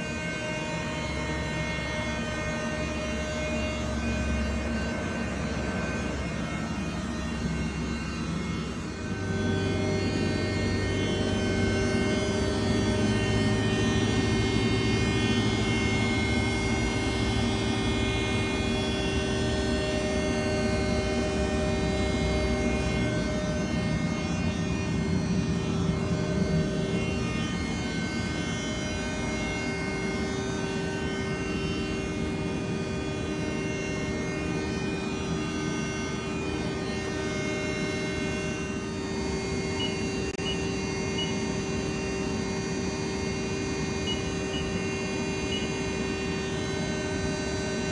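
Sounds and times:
lathe machine humming: 0:00.0 - 0:47.9.

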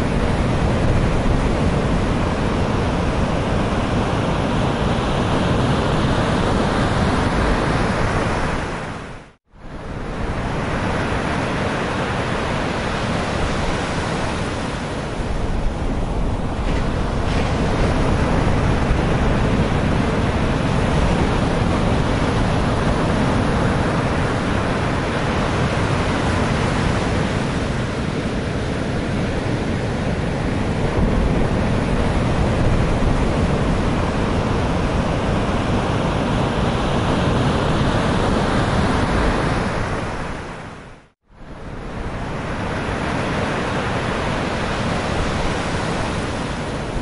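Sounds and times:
wind rumbling on microphone: 0:00.0 - 0:47.0
waves crashing against sea wall: 0:10.0 - 0:47.0.

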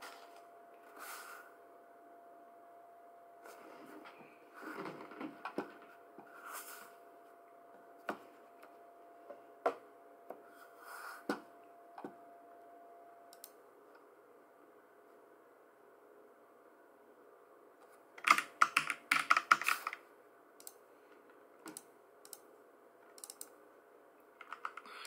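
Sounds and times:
faint steady tone: 0:00.0 - 0:04.6, 0:05.8 - 0:17.7
computer keyboard clicks and taps: 0:18.2 - 0:20.0, 0:23.2 - 0:23.5, 0:24.4 - 0:24.9.

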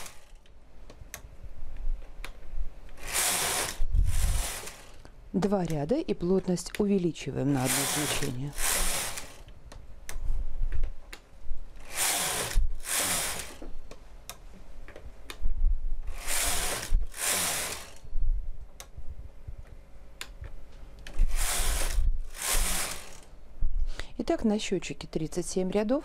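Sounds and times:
knitting machine carriage rushing: 0:00.0 - 0:00.4, 0:03.0 - 0:05.0, 0:07.5 - 0:09.5, 0:11.8 - 0:13.7, 0:16.1 - 0:18.0, 0:21.2 - 0:23.3.

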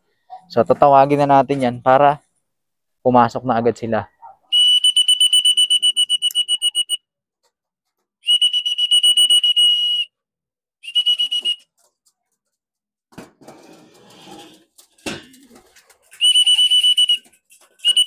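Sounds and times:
trilling whistle blasts: 0:04.5 - 0:07.0, 0:08.2 - 0:10.1, 0:10.8 - 0:11.6, 0:16.2 - 0:18.0.

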